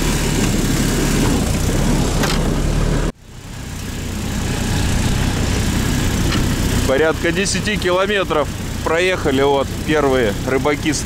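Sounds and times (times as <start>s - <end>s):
off-road vehicle engine running: 0.0s - 11.0s.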